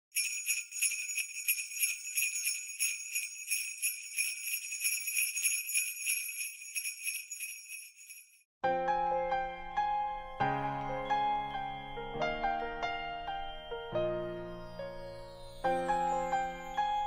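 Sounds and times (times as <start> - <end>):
jingle bells shaken: 0.1 - 8.5.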